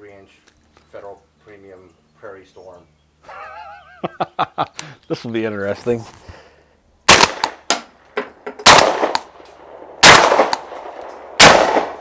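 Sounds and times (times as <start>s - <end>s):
suppressed shotgun shots: 7.1s - 7.9s, 8.6s - 12.0s.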